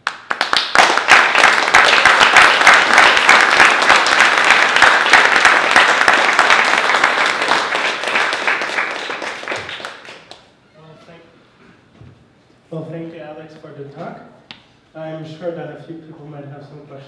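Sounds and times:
audience applauding: 0.0 - 10.5.

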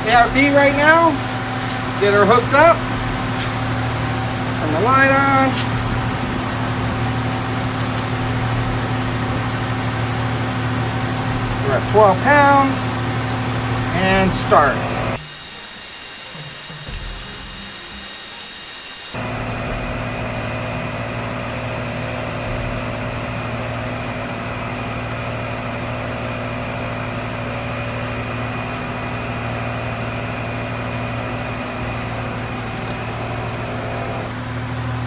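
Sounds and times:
air compressor humming: 0.0 - 35.0
high-pitched steady tones: 15.2 - 19.2.

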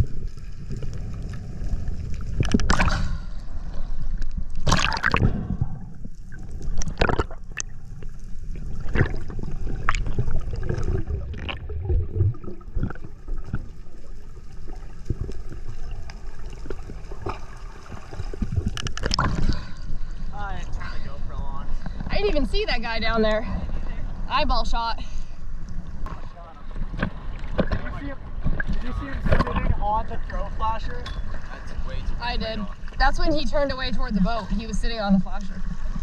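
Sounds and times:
gurgling bubbles: 0.0 - 20.1
underwater rumble of moving water: 0.0 - 36.0.

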